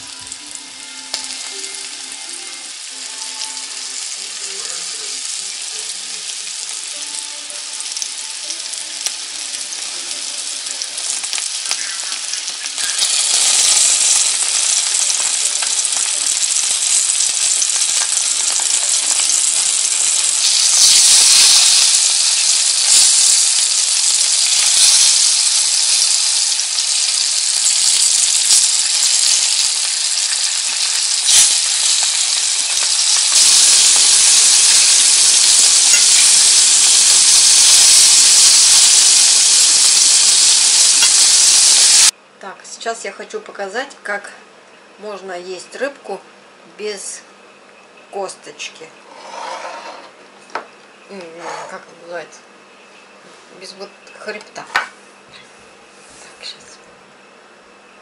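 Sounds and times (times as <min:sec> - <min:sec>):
fish frying in hot oil: 0:07.8 - 0:42.1.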